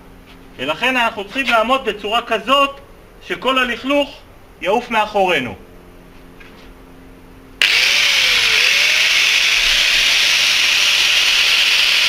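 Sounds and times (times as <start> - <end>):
angle grinder cutting wood: 7.6 - 12.0.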